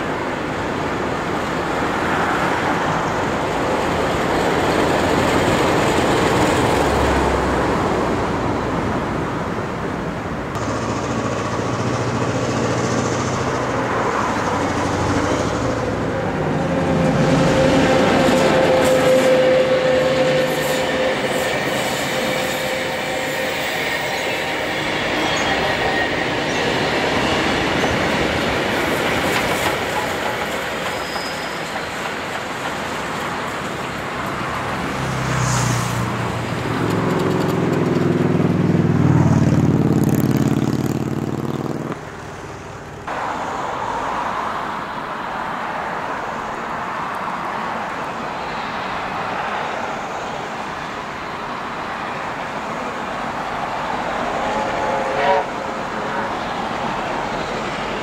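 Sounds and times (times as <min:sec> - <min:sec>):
train carriages rolling on track: 0:00.0 - 0:08.1, 0:10.6 - 0:38.8
steam locomotive approaching: 0:00.0 - 0:40.8, 0:42.4 - 0:58.0
deep train horn: 0:15.4 - 0:26.3, 0:54.4 - 0:55.8
high train whistle: 0:16.4 - 0:26.6, 0:54.4 - 0:55.8.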